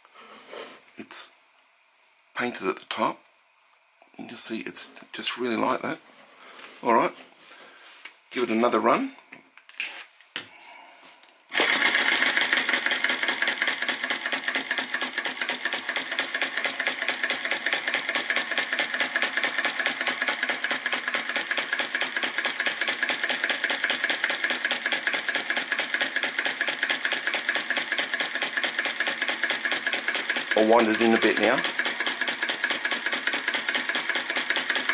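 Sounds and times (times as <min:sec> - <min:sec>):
small engine clattering: 0:11.5 - 0:34.9
flywheel flicked by hand: 0:11.6 - 0:34.9.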